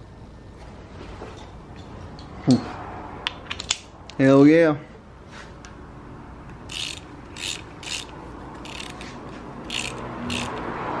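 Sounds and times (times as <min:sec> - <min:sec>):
hand ratchet clicking: 0:06.6 - 0:10.7.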